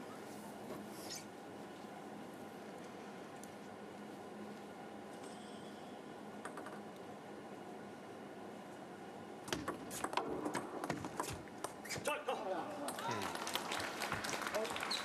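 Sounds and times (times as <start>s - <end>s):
low steady background hum: 0.0s - 15.0s
table tennis ball clicking: 6.4s - 7.0s.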